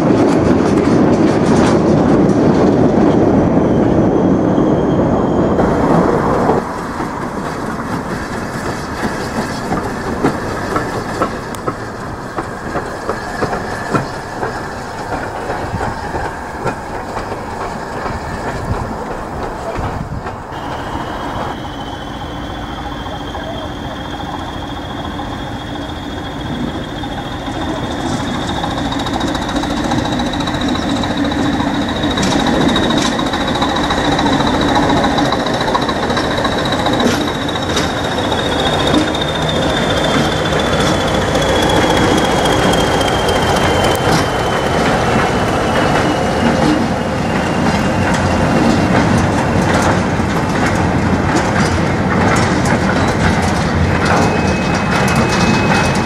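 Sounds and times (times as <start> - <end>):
wheels clicking over rail joints: 0.0 - 3.3, 5.6 - 56.0
diesel locomotives running past: 0.0 - 56.0
wagons rattling: 5.6 - 20.7, 22.5 - 56.0
high turbocharger whistle: 20.5 - 48.8, 54.1 - 56.0.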